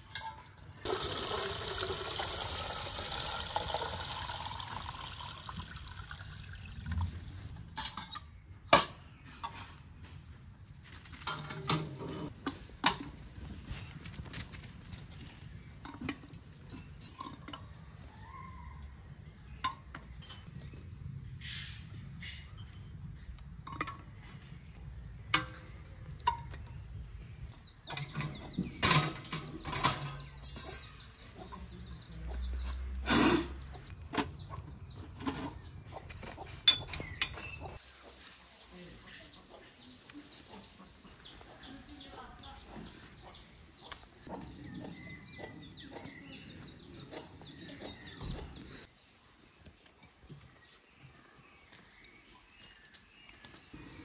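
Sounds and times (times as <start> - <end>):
birds chirping: 15.2 - 54.0.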